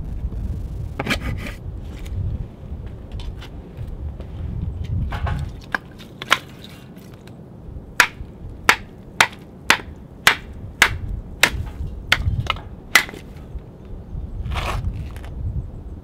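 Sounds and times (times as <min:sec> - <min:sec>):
wood being struck and broken: 0:05.1 - 0:07.3, 0:08.0 - 0:13.4.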